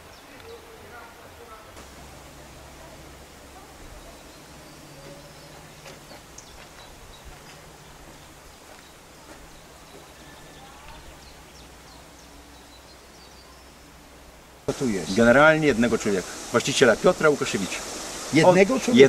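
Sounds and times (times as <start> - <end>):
distant birds chirping: 1.7 - 19.0
steady low hum: 1.8 - 9.9.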